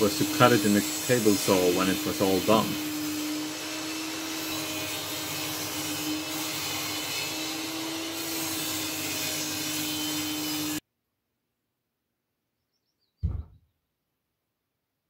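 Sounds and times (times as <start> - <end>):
table saw motor humming: 0.0 - 10.8.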